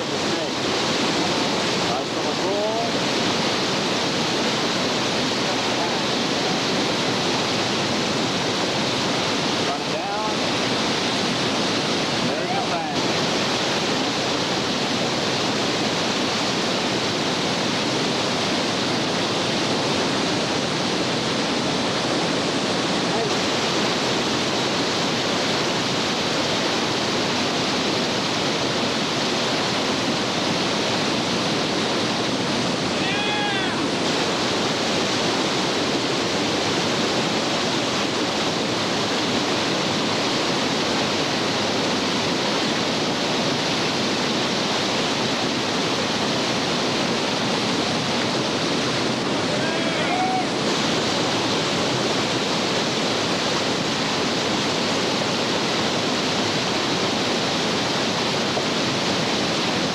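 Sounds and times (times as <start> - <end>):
whitewater rapids rushing: 0.0 - 59.9
short pitched call: 49.5 - 50.6.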